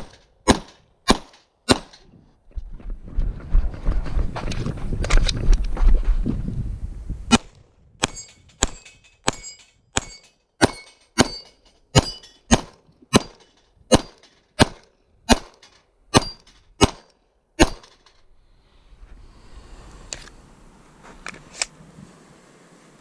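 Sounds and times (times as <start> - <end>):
pistol shots: 0.0 - 2.0, 7.3 - 18.0
steel plate ringing: 8.0 - 12.6, 16.1 - 16.6.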